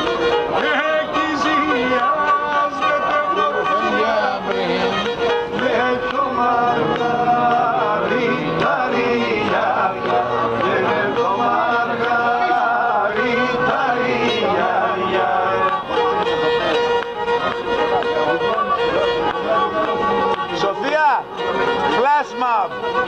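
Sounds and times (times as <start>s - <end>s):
man singing: 0.0s - 16.1s
bowed lyra folk tune: 0.0s - 23.0s.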